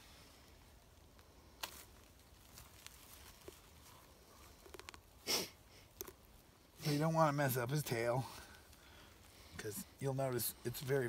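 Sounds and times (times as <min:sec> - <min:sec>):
rustling of skin and feathers: 0:00.0 - 0:11.0.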